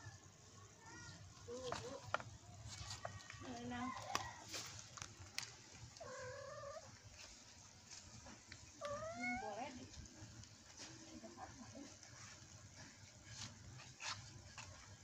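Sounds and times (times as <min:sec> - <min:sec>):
cat meowing: 0:06.0 - 0:06.9, 0:08.8 - 0:09.6.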